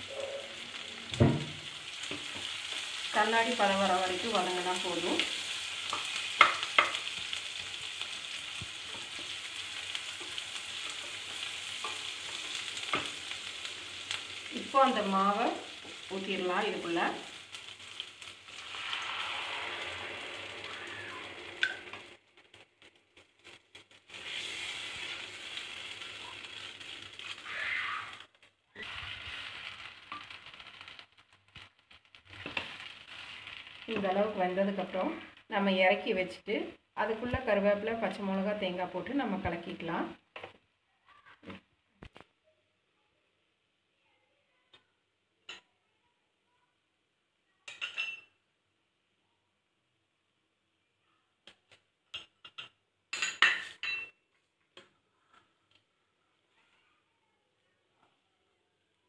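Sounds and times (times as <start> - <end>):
onions sizzling in oil: 0.0 - 36.4, 37.0 - 40.1.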